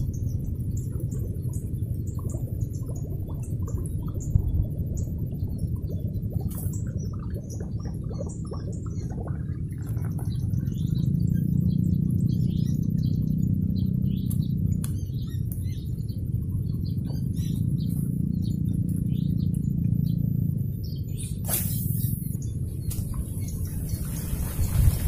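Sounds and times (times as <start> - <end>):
low hum: 0.0 - 25.0
wind rumble on microphone: 0.0 - 25.0
bird chirps: 9.8 - 25.0.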